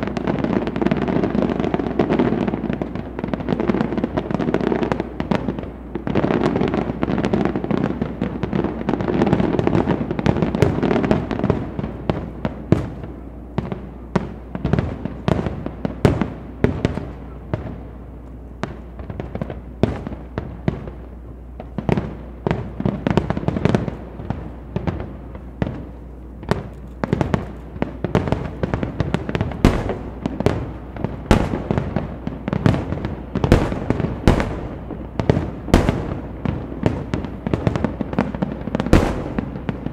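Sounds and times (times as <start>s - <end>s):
firework shells bursting: 24.9s - 39.9s.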